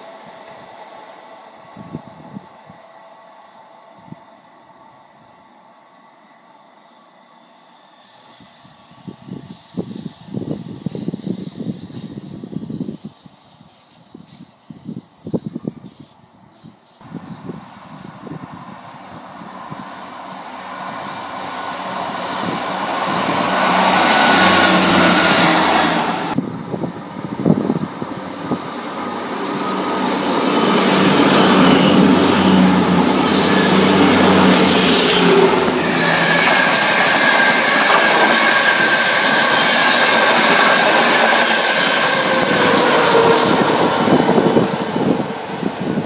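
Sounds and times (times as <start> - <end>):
train wheels on rails: 7.4 - 46.0
diesel train engines running: 17.0 - 46.0
train coaches passing: 17.0 - 46.0
steady high tone: 17.1 - 46.0.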